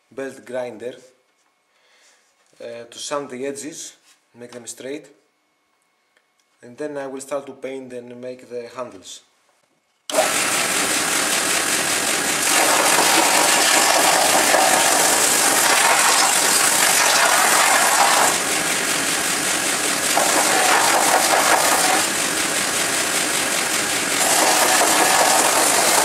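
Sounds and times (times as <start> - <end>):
belt sander sanding wood: 10.1 - 26.0.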